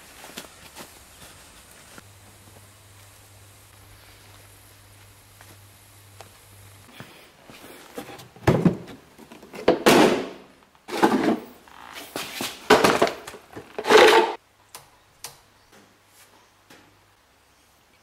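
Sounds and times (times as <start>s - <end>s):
plastic case clunking on concrete: 8.1s - 11.5s.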